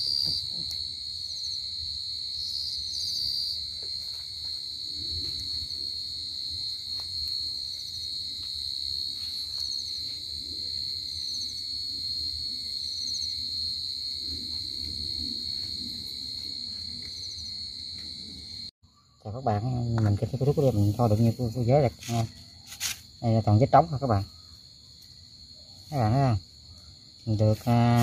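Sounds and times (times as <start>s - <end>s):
crickets trilling: 0.0s - 28.0s
footsteps through grass: 21.9s - 23.1s.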